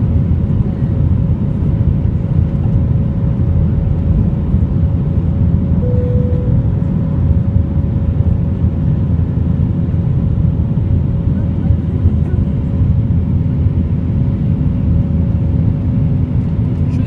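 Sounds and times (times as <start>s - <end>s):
jet engine rumble in cabin: 0.0s - 17.0s
short faint tone: 5.8s - 7.0s.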